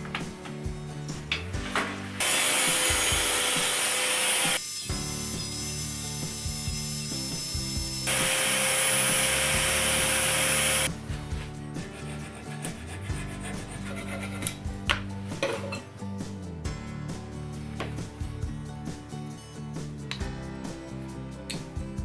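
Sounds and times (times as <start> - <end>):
background music: 0.0 - 22.0
power tool motor whining: 2.2 - 10.9.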